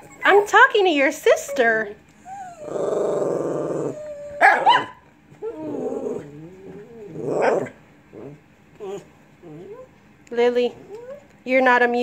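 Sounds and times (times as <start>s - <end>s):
dog whining: 1.3s - 10.0s, 10.8s - 11.3s
dog growly grumble: 2.3s - 4.4s, 5.4s - 9.8s
dog yelping: 2.3s - 6.3s
dog barking: 4.4s - 5.0s.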